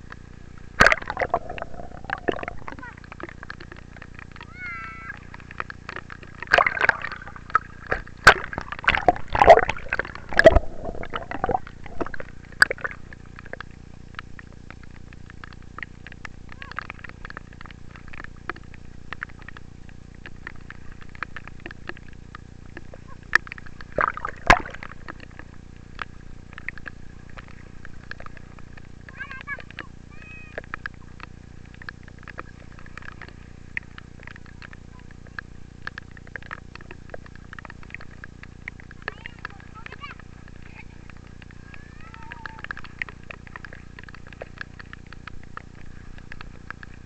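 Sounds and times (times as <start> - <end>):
low water background: 0.0 - 47.0
water splashing: 0.0 - 47.0
children shouting: 4.5 - 5.2, 41.7 - 42.7.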